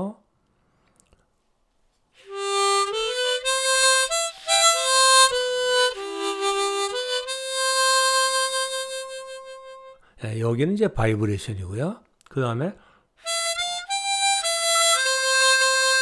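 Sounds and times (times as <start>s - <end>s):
harmonica melody: 2.2s - 10.2s, 13.2s - 16.0s.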